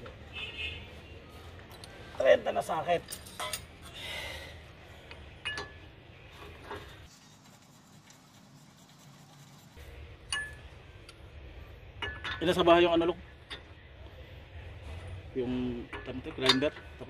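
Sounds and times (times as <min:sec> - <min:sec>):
metal socket clinking on nut: 0:03.0 - 0:03.8.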